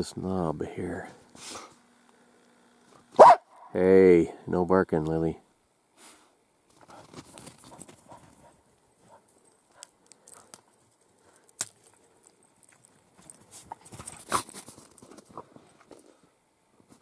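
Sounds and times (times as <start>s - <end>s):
dog barking: 3.2s - 3.5s.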